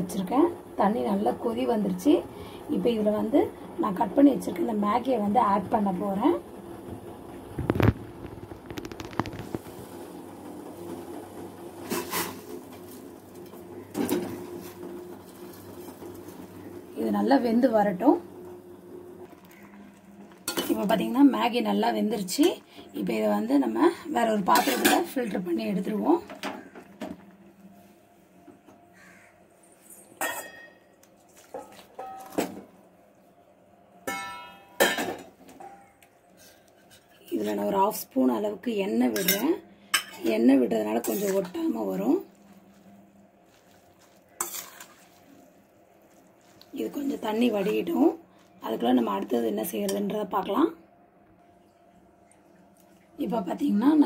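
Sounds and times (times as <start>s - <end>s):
water boiling in a pot: 0.0s - 27.9s, 30.1s - 50.8s, 51.4s - 54.0s
metal pot and colander clanging: 20.4s - 21.0s, 24.4s - 25.4s, 30.2s - 32.7s, 34.0s - 36.0s, 39.1s - 42.0s, 44.3s - 45.2s.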